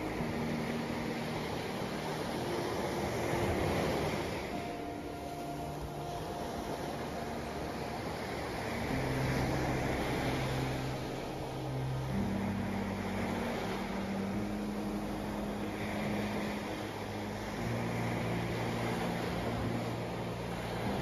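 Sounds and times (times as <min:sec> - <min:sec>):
low steady hum: 0:00.0 - 0:21.0
small waves washing on beach: 0:00.0 - 0:21.0.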